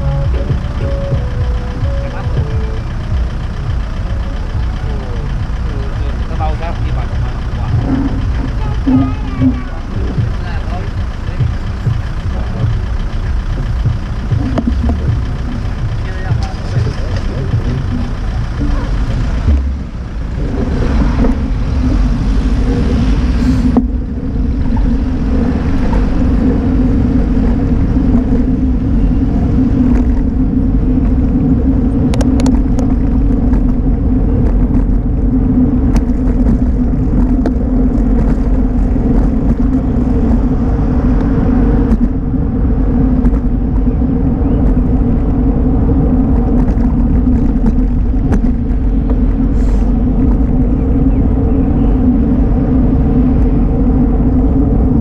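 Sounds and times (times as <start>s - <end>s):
steady low hum: 0.0s - 55.0s
tyre rumble on asphalt: 16.3s - 52.5s
wind on microphone: 18.6s - 55.0s.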